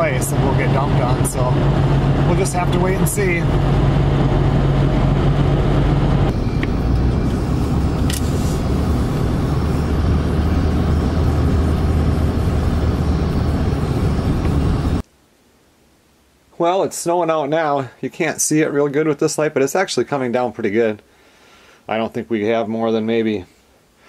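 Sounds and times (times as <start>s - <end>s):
vehicle engine hum: 0.0s - 15.0s.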